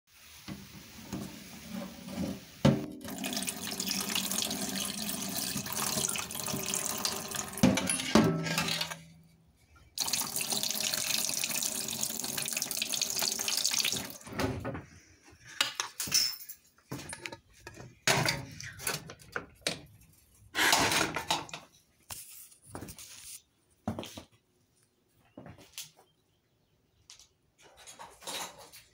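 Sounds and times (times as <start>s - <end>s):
clatter of things handled at sink: 7.4s - 9.0s, 14.2s - 20.0s, 20.6s - 21.7s, 27.6s - 28.9s.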